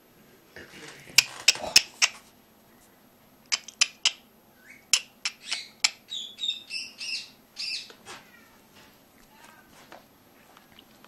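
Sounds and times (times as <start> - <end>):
teeth clicking on rubber toy: 1.2 - 2.2, 3.5 - 4.2.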